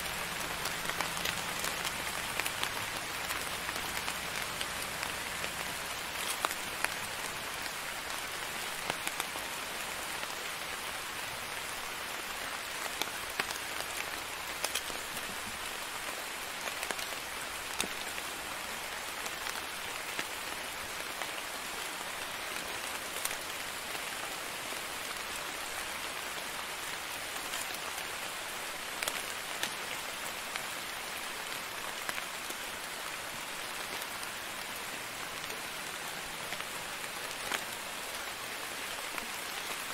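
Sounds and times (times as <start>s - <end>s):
rain drop hits: 0.0s - 10.4s, 11.6s - 20.5s
steady rain hiss: 0.0s - 39.9s.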